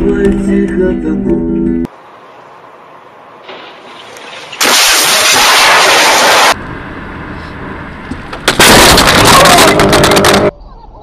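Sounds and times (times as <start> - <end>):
road noise: 0.0 - 11.0
car crash: 3.4 - 6.6, 8.2 - 10.5.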